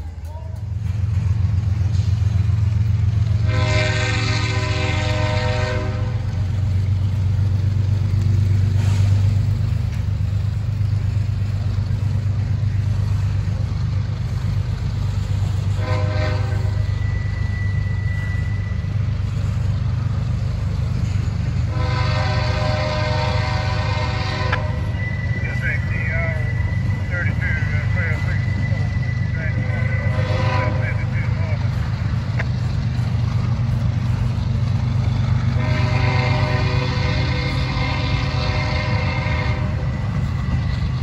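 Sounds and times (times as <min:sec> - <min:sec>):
freight cars rolling past: 0:00.0 - 0:41.0
distant locomotive horn: 0:03.1 - 0:06.9, 0:15.2 - 0:19.7, 0:21.0 - 0:32.1, 0:35.0 - 0:40.9.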